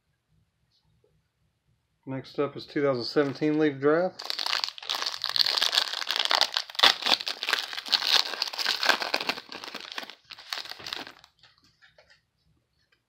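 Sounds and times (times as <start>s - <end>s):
foil wrapper crinkling and tearing: 4.2s - 11.3s.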